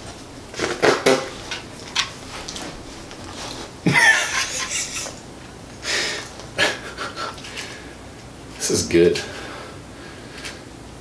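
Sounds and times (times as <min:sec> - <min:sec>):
rustling and scuffing of dog handling: 0:01.3 - 0:03.8
person laughing: 0:03.8 - 0:05.2, 0:06.6 - 0:07.4.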